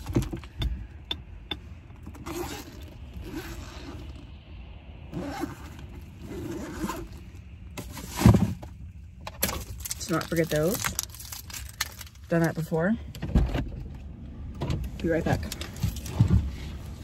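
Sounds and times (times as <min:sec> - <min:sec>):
seatbelt clicking and retracting: 0:01.5 - 0:04.2
zipper pulls: 0:02.2 - 0:04.1, 0:05.1 - 0:07.2.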